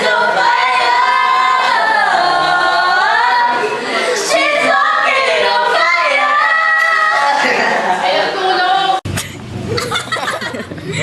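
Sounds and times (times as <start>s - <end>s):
young voices singing into fan: 0.0s - 9.2s
laughter: 9.2s - 11.0s.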